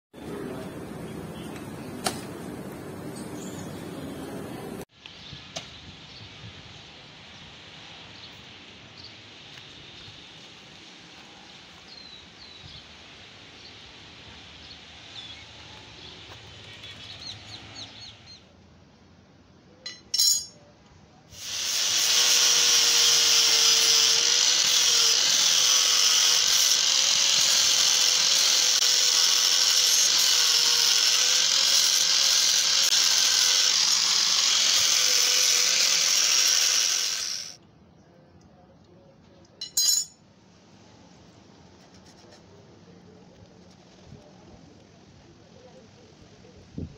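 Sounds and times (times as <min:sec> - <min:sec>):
angle grinder grinding metal: 0:21.4 - 0:37.6.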